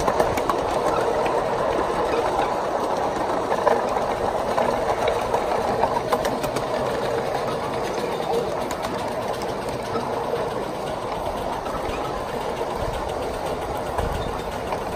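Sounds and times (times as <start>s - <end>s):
miniature train clattering on rails: 0.0s - 14.9s.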